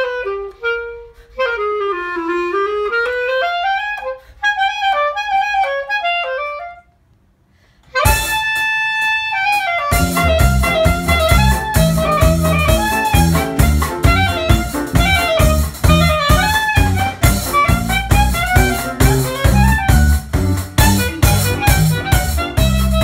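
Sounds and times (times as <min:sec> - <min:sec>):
clarinet jazz melody: 0:00.0 - 0:23.0
drum kit: 0:07.9 - 0:23.0
bass line: 0:08.0 - 0:23.0.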